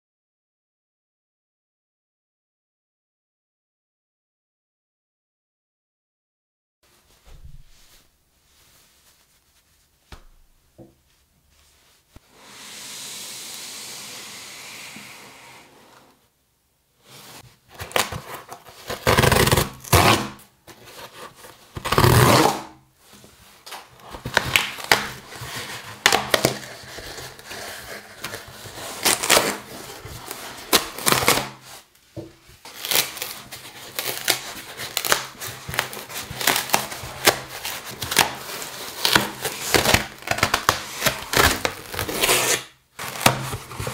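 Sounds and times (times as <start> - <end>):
cardboard box tearing: 17.7 - 22.7, 24.2 - 31.7, 32.7 - 43.9.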